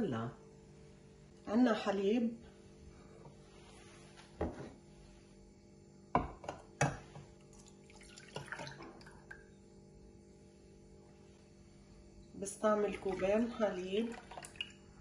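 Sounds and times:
milk pouring into a pan: 0:07.5 - 0:09.3, 0:13.0 - 0:14.9.

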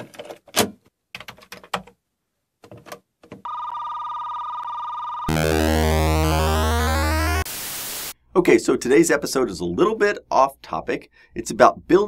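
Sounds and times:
two-pitch electronic beep: 0:05.3 - 0:07.4
chiptune synth music: 0:05.3 - 0:07.5.

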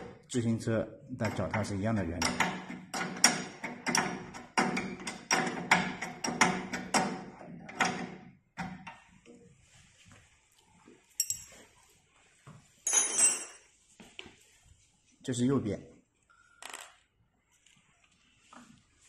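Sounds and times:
clinking rattle: 0:11.2 - 0:11.5.

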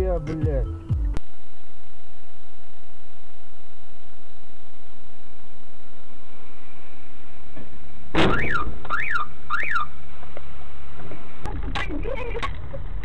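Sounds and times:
car alarm whooping: 0:08.3 - 0:09.9.

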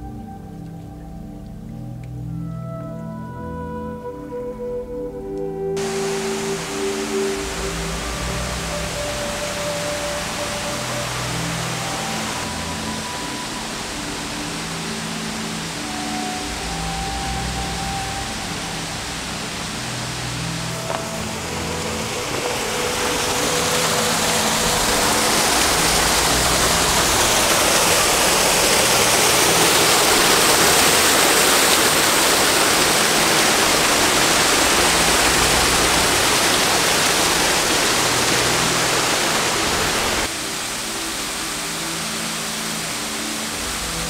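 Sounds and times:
soft background music: 0:00.0 - 0:44.0
waterfall rushing: 0:05.8 - 0:44.0.

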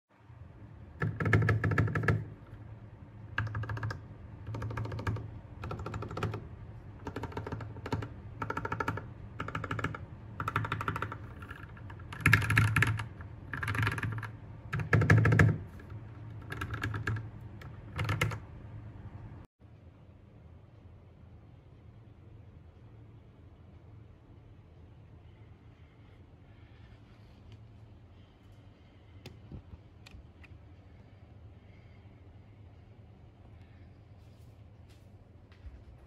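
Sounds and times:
mechanical keyboard typing: 0:01.0 - 0:02.4, 0:03.3 - 0:18.5.

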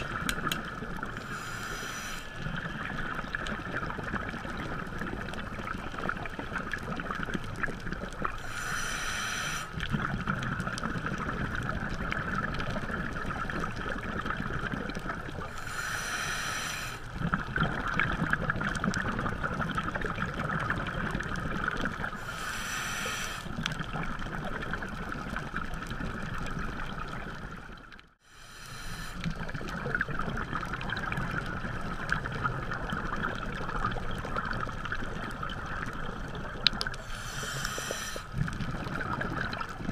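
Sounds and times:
underwater hum: 0:00.0 - 0:39.9
regulator inhale hiss: 0:01.2 - 0:03.0, 0:08.4 - 0:09.9, 0:15.5 - 0:17.2, 0:22.2 - 0:23.7, 0:28.2 - 0:29.7, 0:37.0 - 0:38.5.

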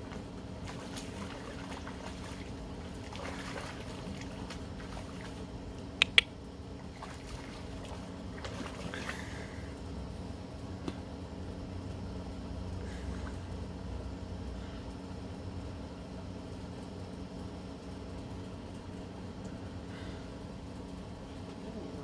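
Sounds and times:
dog splashing in water: 0:00.0 - 0:09.4
steady low hum: 0:00.0 - 0:22.0
sharp clicks: 0:06.0 - 0:06.3.

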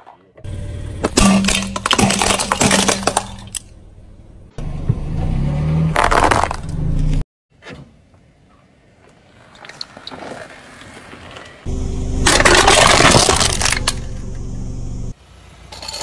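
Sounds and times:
low car engine hum: 0:00.4 - 0:07.2, 0:11.0 - 0:15.7
candies crushed under car tyre: 0:01.0 - 0:03.7, 0:06.0 - 0:06.6, 0:12.2 - 0:14.2.

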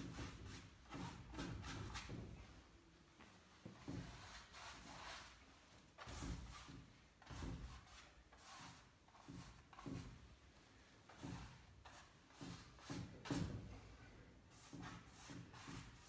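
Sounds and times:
paintbrush strokes on painting: 0:03.6 - 0:16.0.

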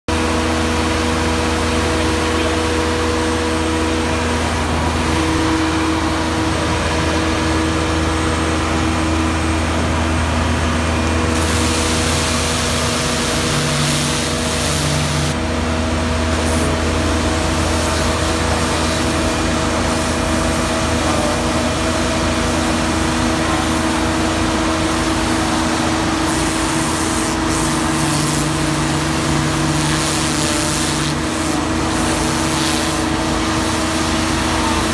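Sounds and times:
engine drone: 0:00.1 - 0:34.9
steady humming tones: 0:00.1 - 0:34.9
water jet spraying hiss: 0:11.3 - 0:15.4, 0:17.6 - 0:34.9.

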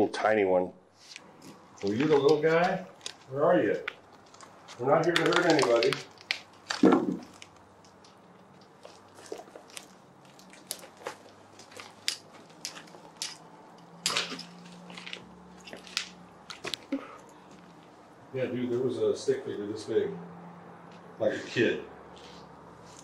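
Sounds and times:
small clicks and crunches: 0:01.2 - 0:18.0.

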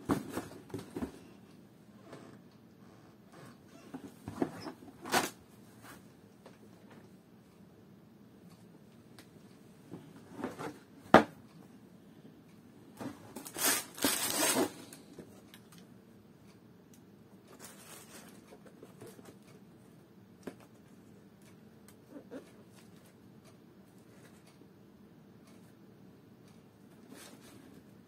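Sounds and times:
tissue paper rustling: 0:13.4 - 0:14.8.

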